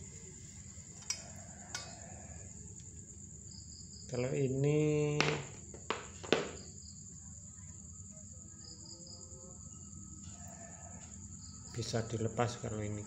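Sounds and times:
crickets chirring: 0.0 - 13.0
metal bicycle parts clinking: 0.9 - 2.2.

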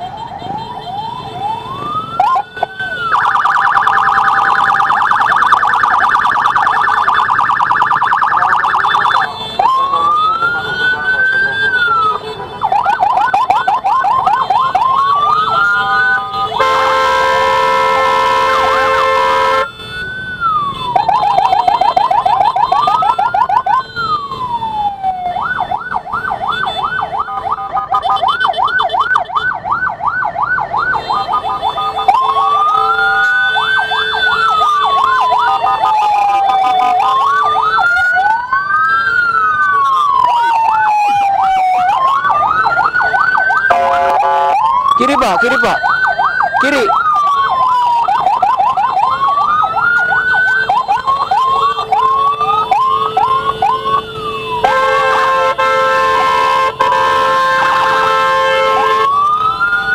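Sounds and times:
ambulance siren wailing and yelping: 0.0 - 59.9
blaring horn: 14.4 - 20.1, 30.9 - 35.7, 43.7 - 44.7, 50.5 - 59.9.

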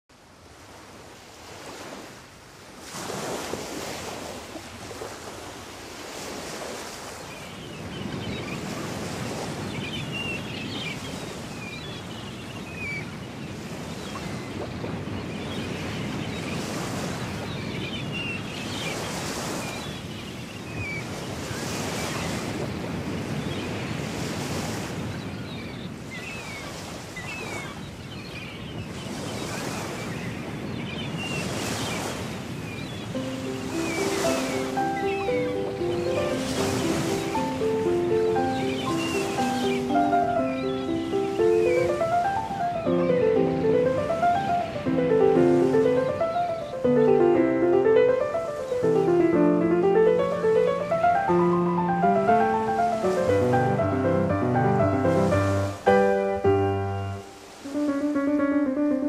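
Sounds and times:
ocean surf breaking: 0.7 - 11.8, 31.4 - 59.0
high chirping calls: 32.8 - 59.0.

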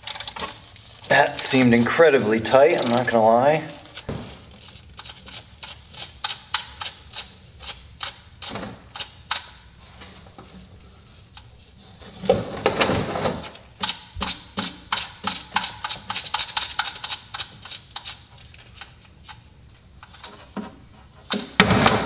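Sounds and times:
ratchet wrench clicking: 0.0 - 0.5, 2.7 - 3.2, 13.8 - 18.2.

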